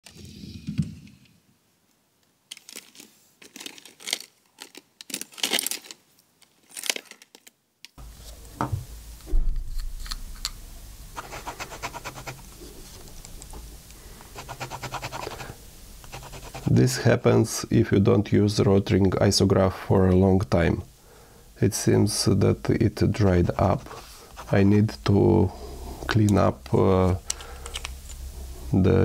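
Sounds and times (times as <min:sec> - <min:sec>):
pen tip scratching paper: 0:11.2 - 0:12.6, 0:14.3 - 0:16.8, 0:23.8 - 0:24.6
pens clicking and rustling: 0:27.3 - 0:28.2.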